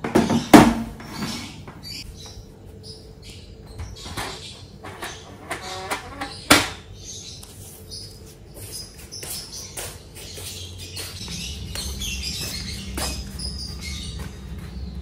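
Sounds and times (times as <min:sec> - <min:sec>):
filter squeaking as it slides: 0:04.0 - 0:06.5.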